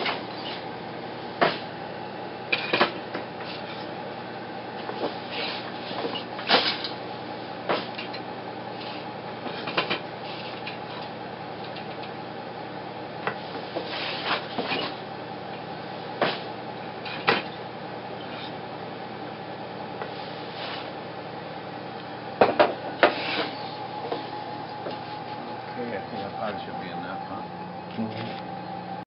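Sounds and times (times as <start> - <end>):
steady hum: 19.7 - 29.0.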